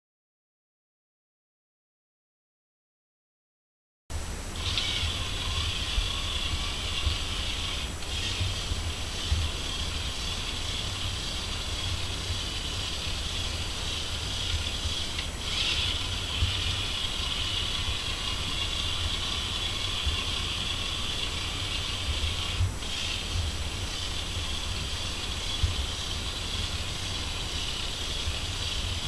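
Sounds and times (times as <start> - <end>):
electric motor whir: 4.5 - 29.0
toy train wheels rumbling: 4.6 - 29.0.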